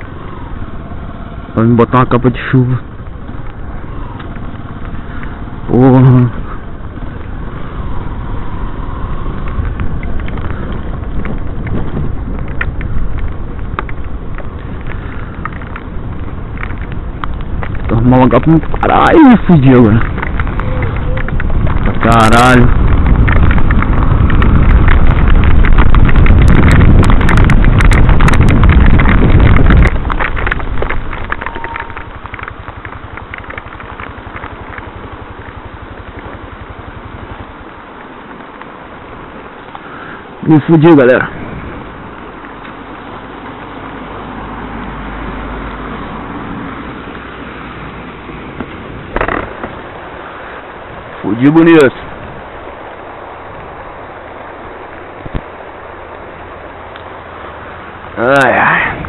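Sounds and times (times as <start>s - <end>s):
raindrops ticking on camera: 0.0s - 59.0s
wind noise on microphone: 0.0s - 59.0s
motorcycle engine running: 2.4s - 39.6s.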